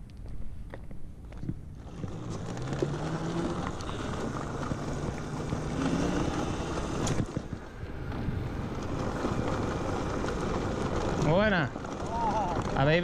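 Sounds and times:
wind buffeting microphone: 0.0s - 13.0s
bicycle tyres on gravel: 0.2s - 13.0s.

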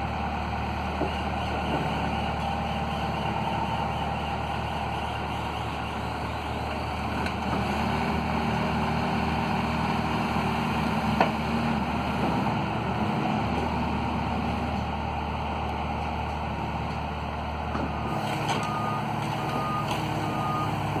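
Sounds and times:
excavator diesel engine running: 0.0s - 21.0s
backup alarm beeping: 18.6s - 20.9s.

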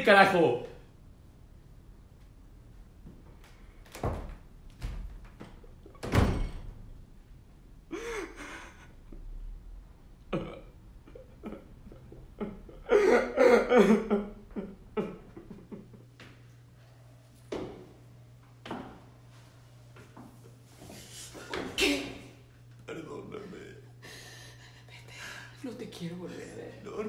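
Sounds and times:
man sobbing: 7.9s - 9.0s, 10.4s - 15.9s, 22.8s - 24.9s.

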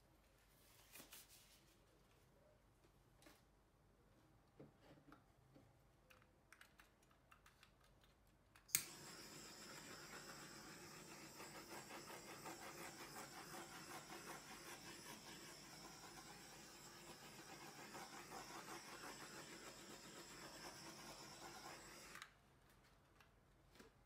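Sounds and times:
torch lighting click: 8.7s - 9.1s.

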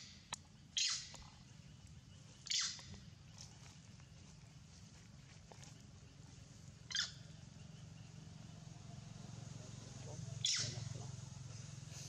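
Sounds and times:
high-pitched animal squeaks: 0.8s - 1.1s, 2.5s - 2.9s, 10.4s - 10.8s.

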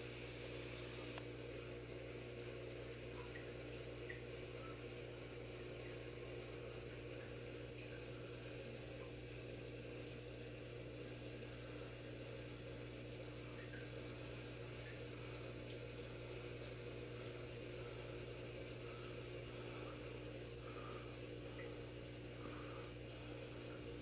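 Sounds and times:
water trickling and flowing: 1.6s - 24.0s
low motor hum: 3.2s - 24.0s.

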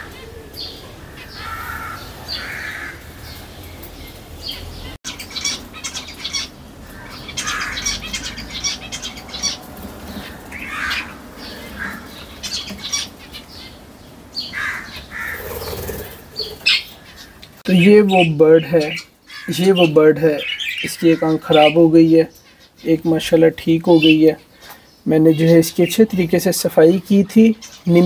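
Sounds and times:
parrots squawking: 0.0s - 3.6s, 4.4s - 22.8s.

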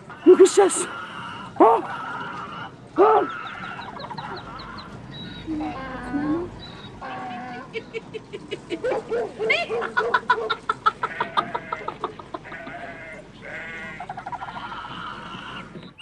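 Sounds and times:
man laughing: 7.7s - 9.1s, 9.9s - 12.8s.

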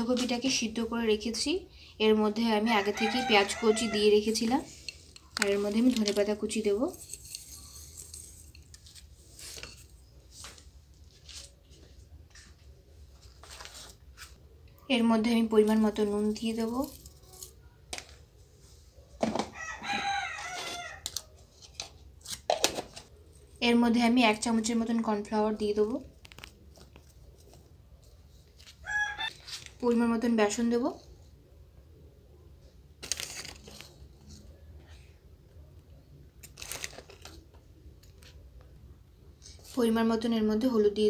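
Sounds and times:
rooster crowing: 2.8s - 4.3s, 19.5s - 21.1s, 28.8s - 29.3s
flour rustling and crinkling: 4.4s - 7.7s.

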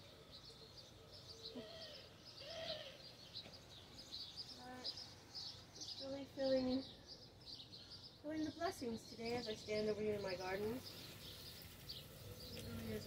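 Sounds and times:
low hooting bird calls: 0.0s - 6.1s, 10.6s - 13.0s
small birds chirping: 0.0s - 13.0s.

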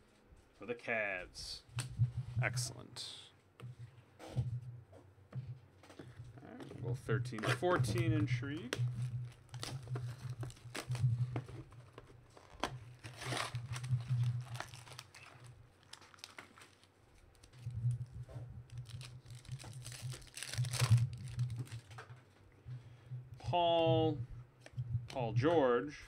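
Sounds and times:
foil wrapper tearing and crinkling: 9.0s - 22.0s.

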